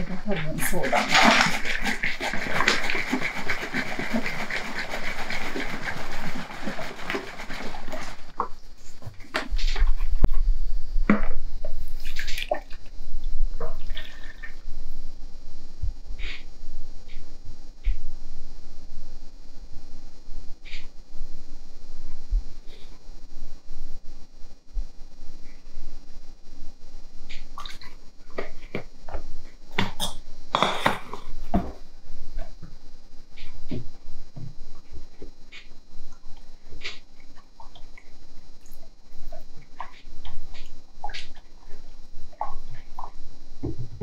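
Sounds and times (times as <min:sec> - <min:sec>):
liquid pouring into plastic tub: 0:00.6 - 0:08.4
liquid glugging into a cup: 0:13.6 - 0:14.6.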